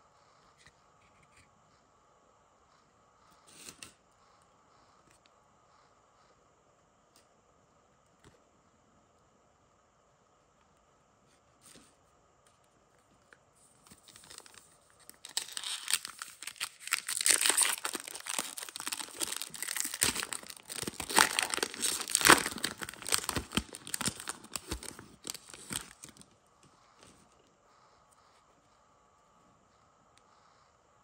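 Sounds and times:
foil wrapper crinkling and tearing: 13.8s - 26.4s.

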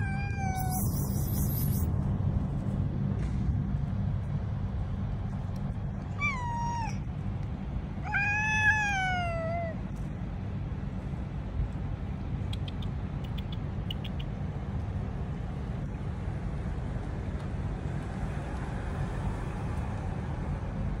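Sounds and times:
cat meowing: 0.0s - 1.4s, 6.1s - 7.0s, 8.0s - 9.8s
steady low rumble: 0.0s - 21.0s.

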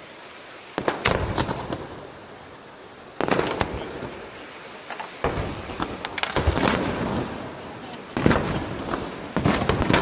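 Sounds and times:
firework shells bursting: 4.9s - 7.4s.

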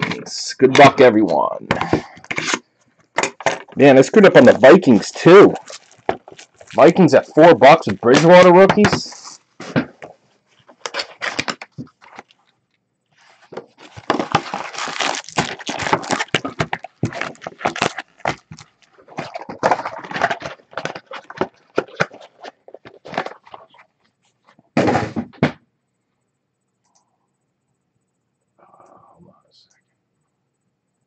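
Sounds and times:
packs thumping on table: 0.0s - 12.3s, 13.3s - 23.8s
foil packs crinkling: 0.0s - 12.5s, 13.2s - 24.0s.

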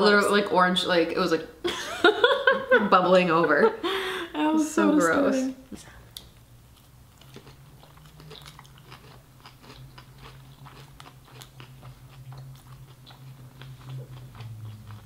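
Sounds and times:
wet chewing mouth clicks: 7.2s - 15.0s.

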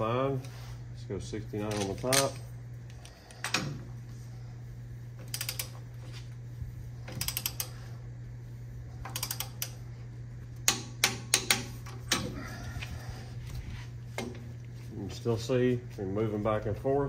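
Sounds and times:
steady low hum: 0.0s - 17.0s
torque wrench ratchet clicking: 5.2s - 5.8s, 7.1s - 7.8s, 9.0s - 9.8s.

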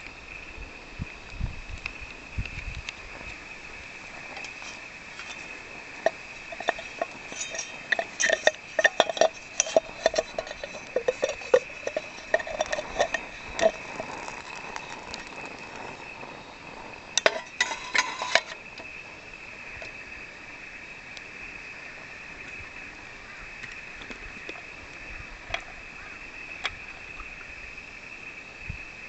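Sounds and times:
metal cup clinking on stove: 6.0s - 15.2s, 17.2s - 18.6s.

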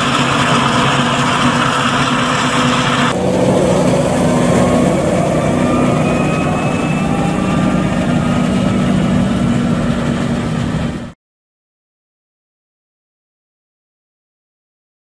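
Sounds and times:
tractor engine running under load: 0.0s - 11.2s.

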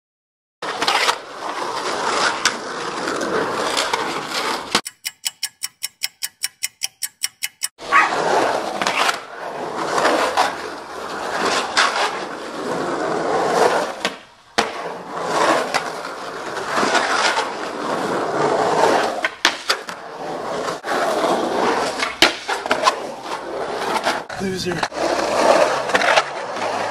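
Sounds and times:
skateboard wheels rolling on concrete: 0.6s - 4.8s, 7.8s - 26.9s
evenly spaced clicks: 4.8s - 7.8s.

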